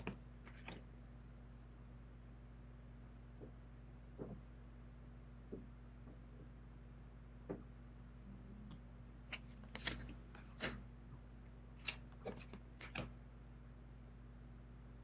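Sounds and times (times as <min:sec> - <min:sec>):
cards sliding and slapping: 0:00.0 - 0:00.8, 0:09.3 - 0:10.8, 0:11.8 - 0:13.1
steady low hum: 0:00.0 - 0:15.0.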